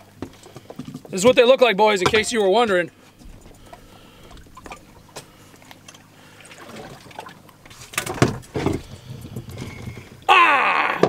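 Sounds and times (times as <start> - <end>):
water trickling: 1.1 - 8.0.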